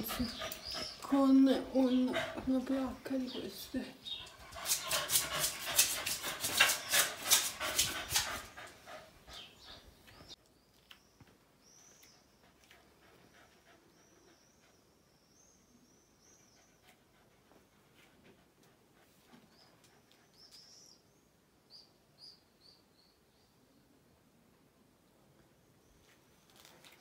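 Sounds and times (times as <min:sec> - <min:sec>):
dog panting: 0:00.0 - 0:10.4, 0:12.0 - 0:15.1, 0:16.3 - 0:20.7.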